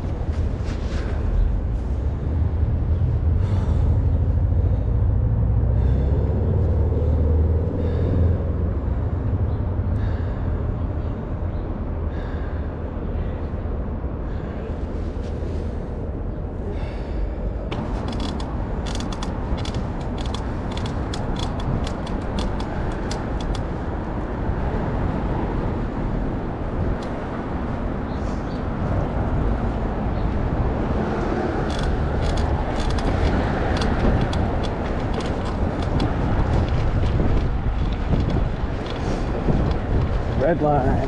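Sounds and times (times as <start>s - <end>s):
city street traffic rumble: 0.0s - 41.0s
tyres on pavement: 17.7s - 25.2s, 26.6s - 41.0s.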